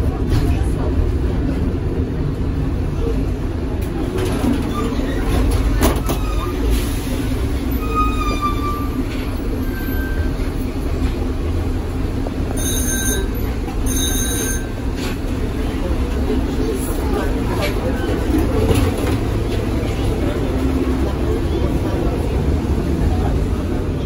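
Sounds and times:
tram wheels rumbling on rails: 0:00.0 - 0:24.0
faint wheel squeal: 0:07.7 - 0:10.6, 0:12.6 - 0:14.9.

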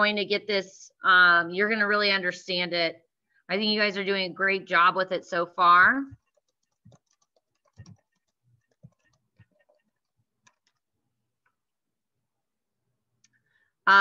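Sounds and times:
faint computer clicks: 0:06.1 - 0:10.9.

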